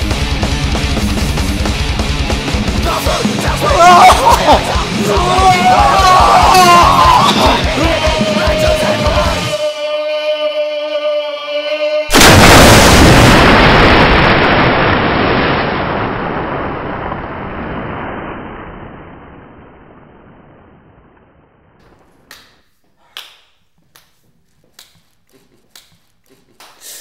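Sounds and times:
soundtrack music: 0:00.0 - 0:10.0
loud boom-like crash: 0:12.1 - 0:21.8.

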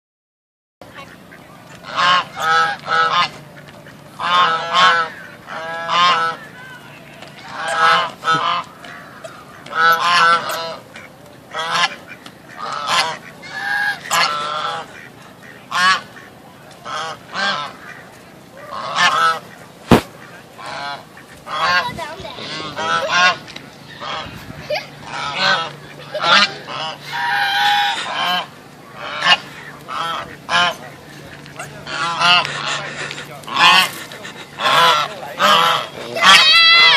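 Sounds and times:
geese honking: 0:00.8 - 0:36.9.

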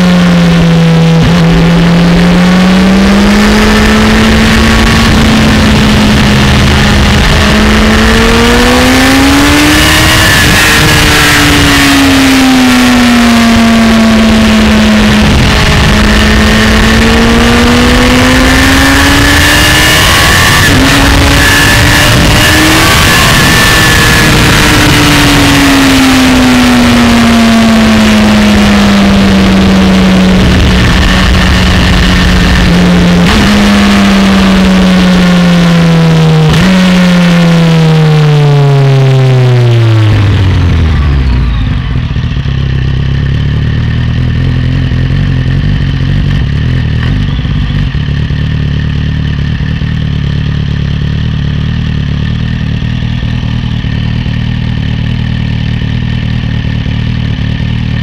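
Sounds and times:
motorcycle engine: 0:00.0 - 0:58.0
wind rush: 0:02.7 - 0:12.0, 0:29.2 - 0:34.7.

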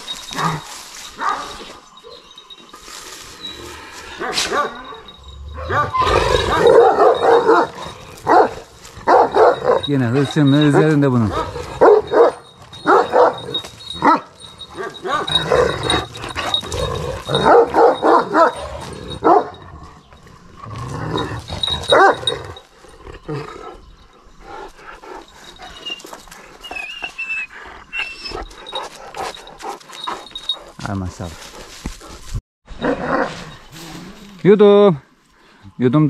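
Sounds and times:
dog barking and whining: 0:00.3 - 0:02.3, 0:04.2 - 0:19.8, 0:21.2 - 0:22.6.

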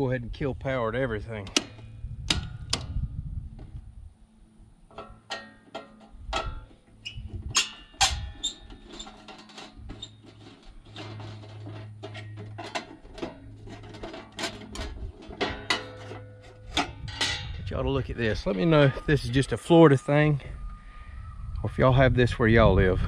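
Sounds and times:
steady low hum: 0:00.0 - 0:23.0
screwdriver clicks and scrapes on metal: 0:04.9 - 0:17.5.

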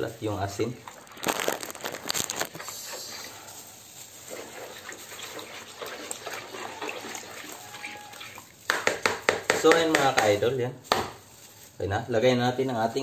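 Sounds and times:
liquid swishing in bowl: 0:02.5 - 0:08.7.

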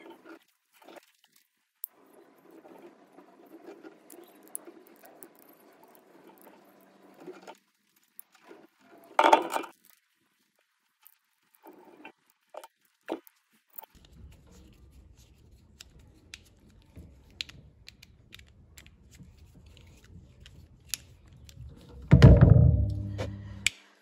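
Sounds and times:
faint low hum: 0:14.0 - 0:23.7
loud low noise: 0:22.1 - 0:23.7.

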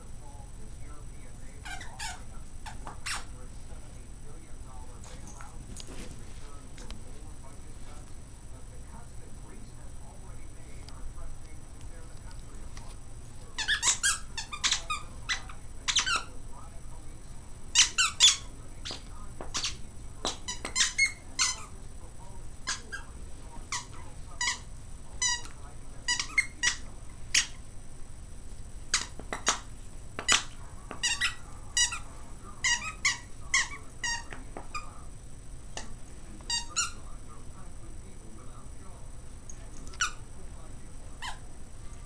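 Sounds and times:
dog toy squeaking: 0:01.6 - 0:03.3, 0:13.6 - 0:16.3, 0:17.7 - 0:21.7, 0:22.6 - 0:23.1, 0:23.7 - 0:27.6, 0:30.2 - 0:34.9, 0:36.5 - 0:37.0, 0:39.9 - 0:40.2, 0:41.2 - 0:41.4.

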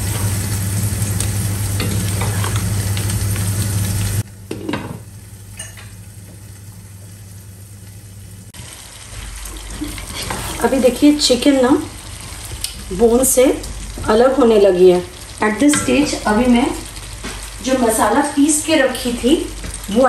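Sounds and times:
food sizzling in a pot: 0:00.0 - 0:20.0
wooden spatula scraping: 0:09.6 - 0:11.3.

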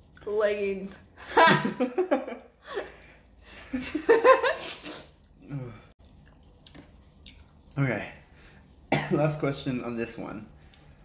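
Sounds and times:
woman laughing: 0:01.2 - 0:02.9, 0:03.6 - 0:05.0.

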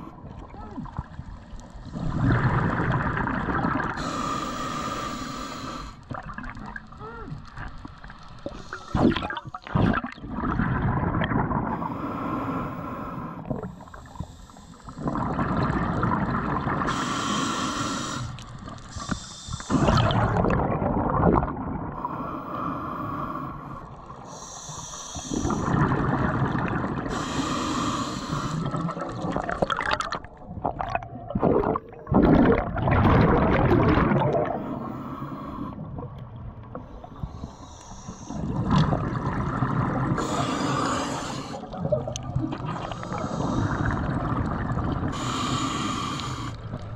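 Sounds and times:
diver breathing underwater: 0:03.8 - 0:06.0, 0:11.7 - 0:15.5, 0:16.2 - 0:20.4, 0:21.9 - 0:29.1, 0:34.4 - 0:36.1, 0:36.8 - 0:38.9, 0:39.7 - 0:44.4, 0:45.0 - 0:46.8
air bubbling underwater: 0:19.7 - 0:22.0, 0:28.7 - 0:34.7.

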